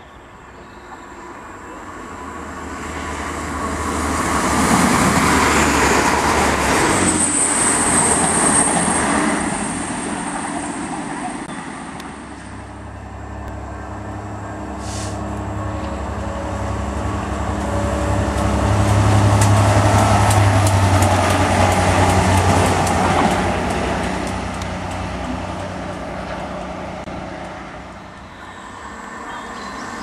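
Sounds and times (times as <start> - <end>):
diesel locomotive passing: 0.0 - 30.0
sharp clicks of train wheels: 18.2 - 27.6.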